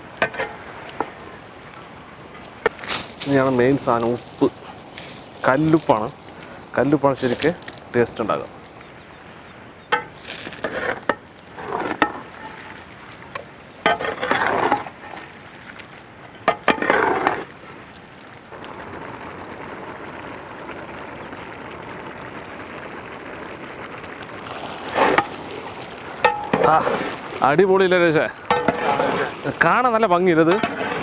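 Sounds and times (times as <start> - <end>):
spoon scraping pan: 0.2 - 1.1, 9.9 - 15.3, 26.2 - 27.3, 28.5 - 29.4, 30.4 - 31.0
chicken sizzling in oil: 16.4 - 31.0.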